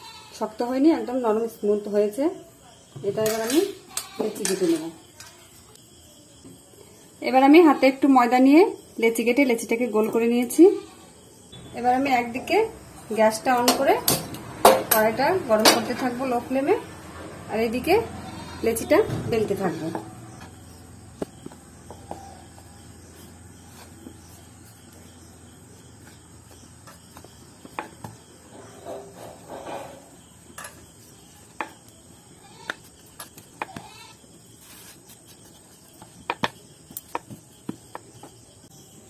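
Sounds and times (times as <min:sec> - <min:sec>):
rolling pin rolling dough: 0:17.6 - 0:30.2.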